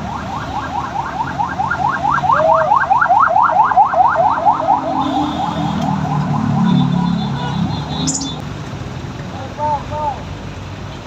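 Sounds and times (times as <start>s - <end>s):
electronic siren alarm chirps: 7.9s - 8.4s.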